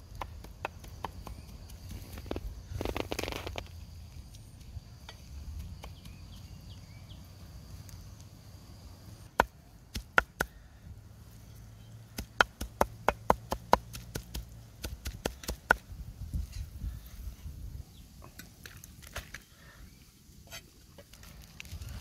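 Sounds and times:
cleaver chopping on a block: 0:00.1 - 0:01.8, 0:09.4 - 0:10.6, 0:12.2 - 0:15.8.

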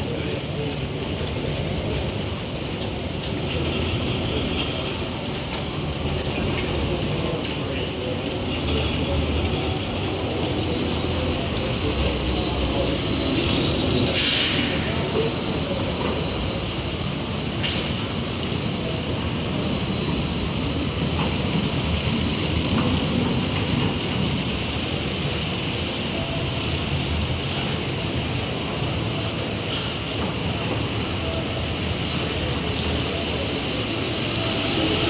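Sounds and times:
rain on wet pavement: 0:00.0 - 0:35.0
tram rumbling past: 0:00.0 - 0:35.0
loud hiss: 0:14.1 - 0:15.1.

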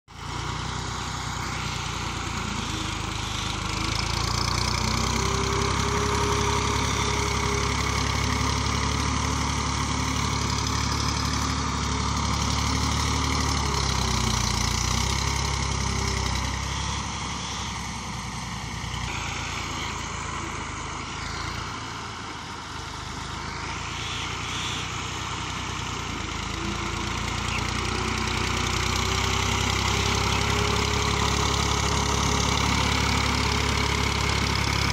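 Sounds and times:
diesel tractor engine running: 0:00.1 - 0:34.9.

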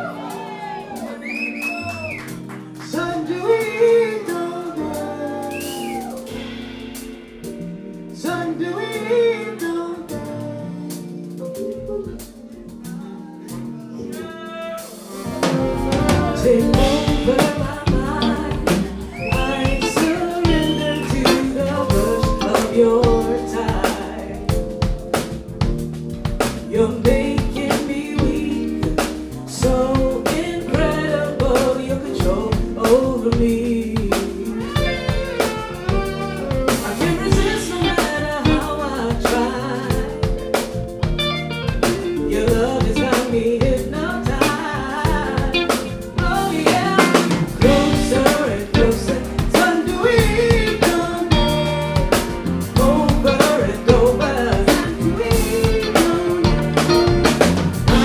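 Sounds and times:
jazz-funk band playing: 0:00.0 - 0:58.0
woman singing: 0:14.1 - 0:24.7, 0:26.7 - 0:35.2, 0:36.7 - 0:40.8, 0:42.2 - 0:58.0.

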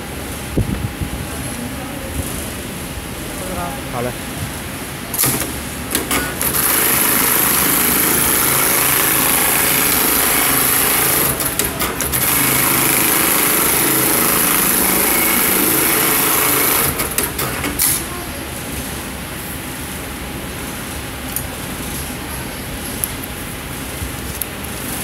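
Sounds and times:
sewing machine clicks: 0:05.2 - 0:18.0
sewing machine running fast: 0:05.2 - 0:18.0.

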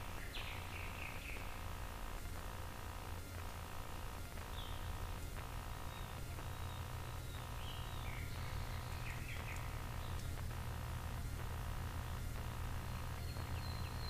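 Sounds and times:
camera recording hum and hiss: 0:00.0 - 0:14.0
faint high chirps: 0:04.4 - 0:14.0.

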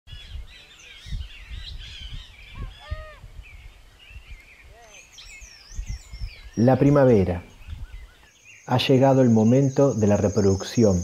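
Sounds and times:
birds chirping and twittering: 0:00.1 - 0:11.0
lower arching bird calls: 0:00.1 - 0:11.0.

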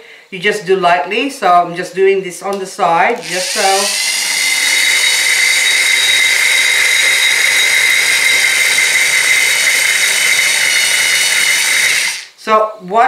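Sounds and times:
electric drill cutting ceramic: 0:03.2 - 0:12.4.

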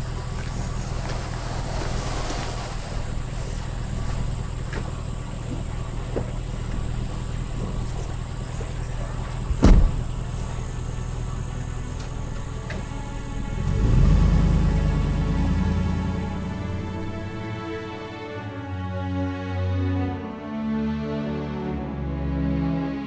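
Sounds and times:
truck engine idling: 0:00.0 - 0:18.9
car door slamming: 0:09.4 - 0:10.3.

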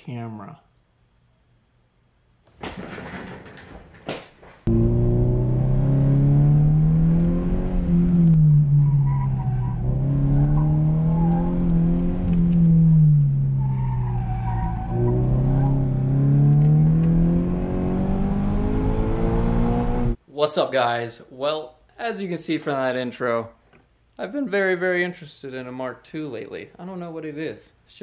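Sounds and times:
car engine revving: 0:04.7 - 0:20.2
tyres squealing: 0:08.7 - 0:11.7, 0:13.3 - 0:15.9.

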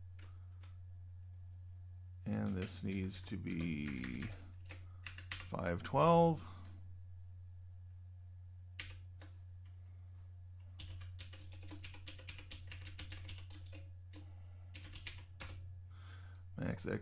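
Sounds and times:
steady low hum: 0:00.0 - 0:17.0
keyboard typing: 0:02.3 - 0:05.6, 0:08.8 - 0:09.4, 0:10.8 - 0:15.6.

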